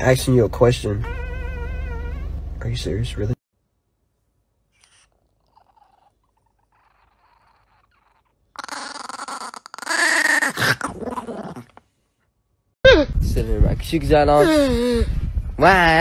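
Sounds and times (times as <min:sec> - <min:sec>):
puppy growling: 0:04.9 - 0:11.8.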